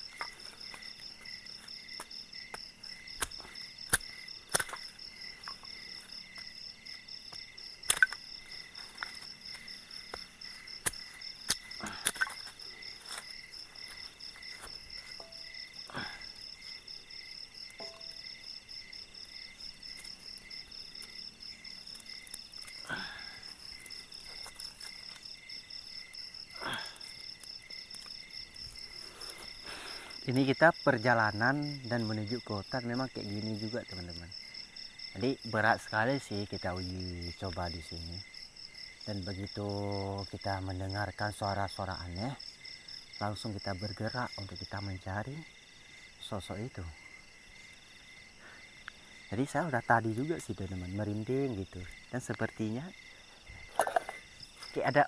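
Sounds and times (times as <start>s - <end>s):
night insects chorus: 0.0s - 55.0s
dry sticks snapping: 0.1s - 6.5s, 7.3s - 16.4s, 19.7s - 25.4s, 26.0s - 29.6s.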